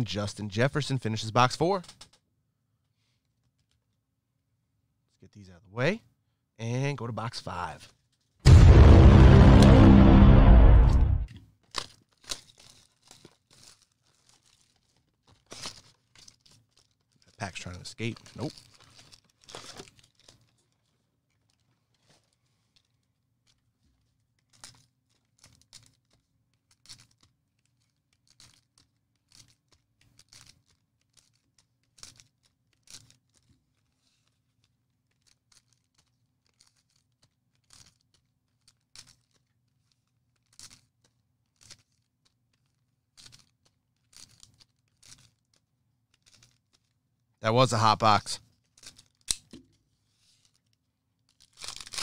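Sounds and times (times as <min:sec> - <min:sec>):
card pack wrappers tearing: 0:51.3 - 0:52.0.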